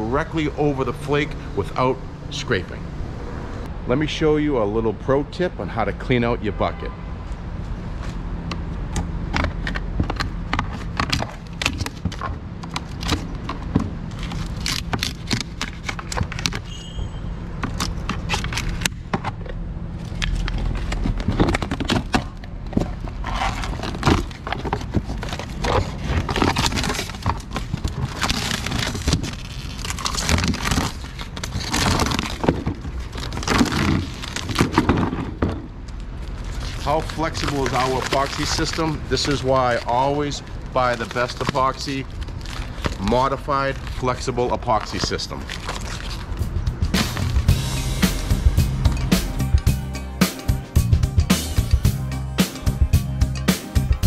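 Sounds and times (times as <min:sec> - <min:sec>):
epoxy skin peeling and tearing: 0:14.1 - 0:16.7, 0:23.0 - 0:34.9, 0:36.2 - 0:40.1, 0:40.8 - 0:47.5.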